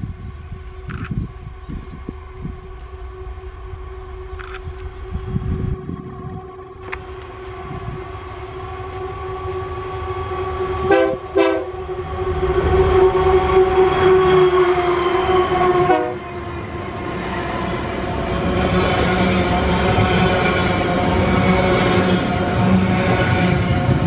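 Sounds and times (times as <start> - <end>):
locomotive engine and wheel rumble: 0.0 - 24.0
locomotive horn: 2.3 - 16.4.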